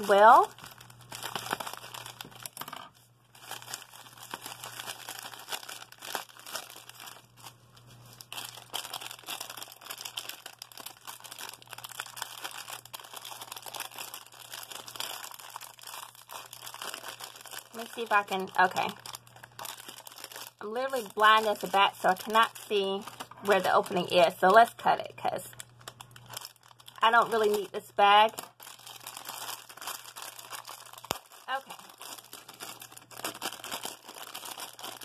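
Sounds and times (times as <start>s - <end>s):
plastic packaging crinkling: 0.0s - 35.0s
scissors cutting bubble wrap: 28.7s - 35.0s.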